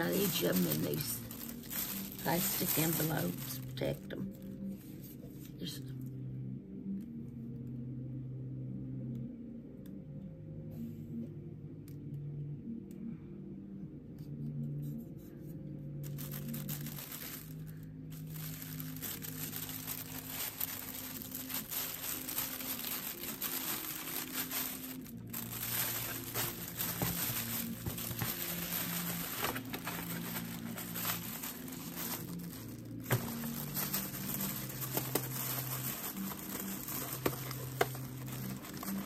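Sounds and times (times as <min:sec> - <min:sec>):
plastic packaging crinkling and tearing: 0:00.0 - 0:04.6, 0:16.0 - 0:39.0.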